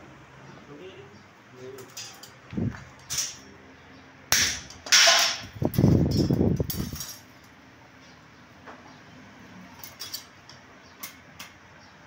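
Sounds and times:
steel bars clattering: 1.8s - 2.4s, 3.0s - 3.5s, 4.3s - 7.4s, 9.8s - 10.3s
sharp metallic hits: 4.3s - 7.2s.

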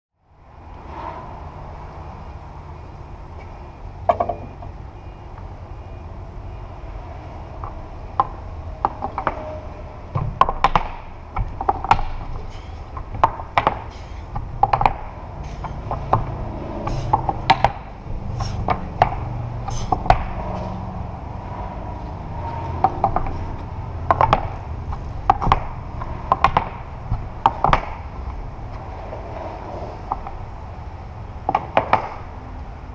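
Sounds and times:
wooden pegs knocking: 4.0s - 4.8s, 7.6s - 9.5s, 10.1s - 20.4s, 22.7s - 28.1s, 30.1s - 30.4s, 31.4s - 32.3s
low rumble: 14.3s - 31.5s.

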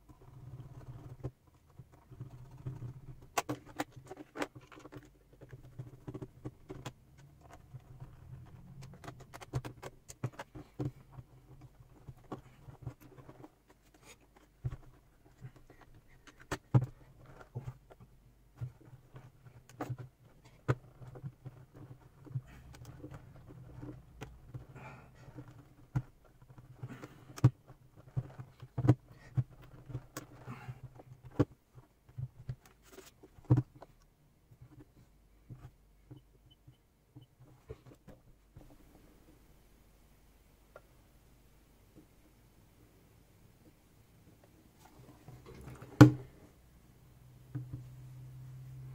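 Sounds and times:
plastic case clicks and knocks: 45.5s - 46.3s.

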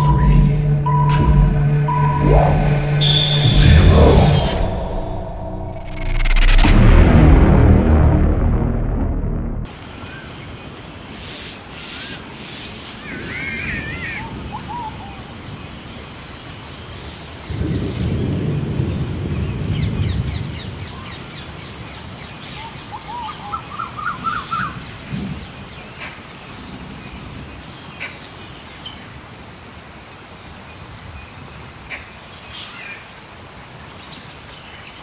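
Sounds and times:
thin high-pitched tone: 0.0s - 6.5s
low rumble: 0.0s - 9.7s.

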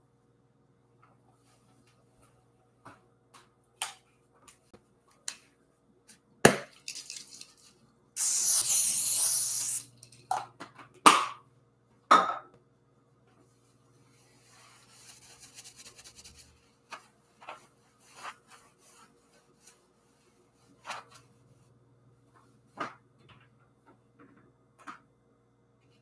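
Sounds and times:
cooking spray hissing: 8.2s - 10.0s.

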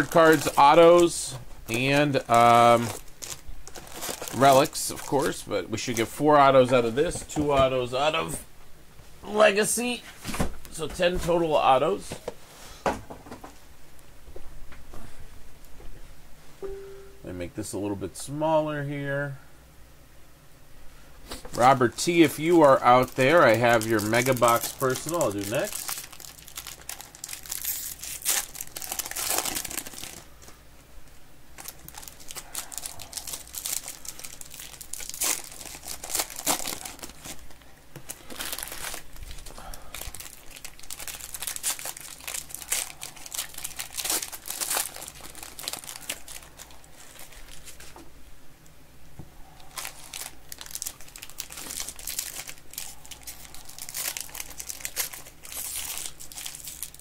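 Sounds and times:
foil wrappers tearing and crinkling: 0.0s - 6.1s, 21.6s - 30.6s, 31.6s - 47.9s, 49.6s - 57.0s.

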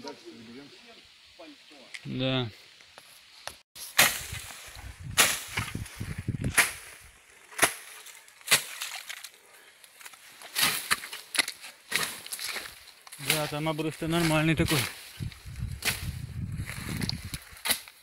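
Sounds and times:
sharp chopping impacts: 3.8s - 9.2s, 10.5s - 15.0s, 15.8s - 16.2s, 16.9s - 18.0s.

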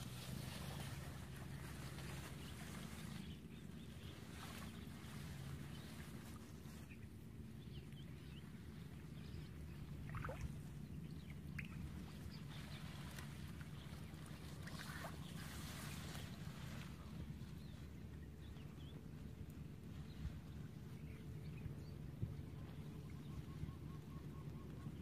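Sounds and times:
feet wading through water: 0.0s - 25.0s
low steady rumble: 0.0s - 25.0s
faint bird chirps: 20.9s - 25.0s.

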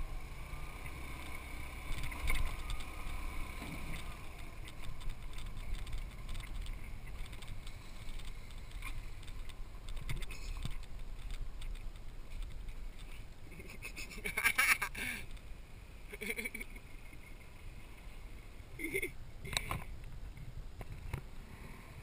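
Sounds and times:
wind and road rumble: 0.0s - 22.0s
gravel clicks and knocks: 0.8s - 13.6s.

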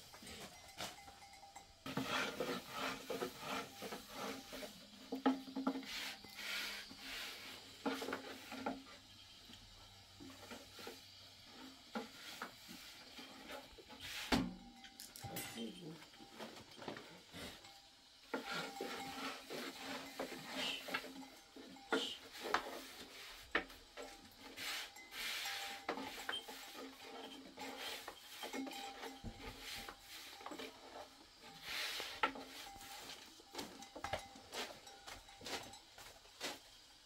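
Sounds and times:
rolling pin rubbing over dough: 1.9s - 8.6s.

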